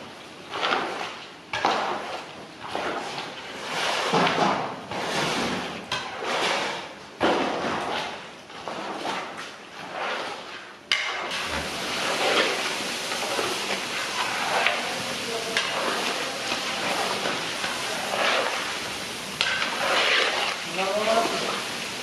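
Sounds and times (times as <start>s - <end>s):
spatula scraping steel pot: 0.5s - 7.0s, 7.6s - 21.7s
frying sizzle: 10.9s - 22.0s.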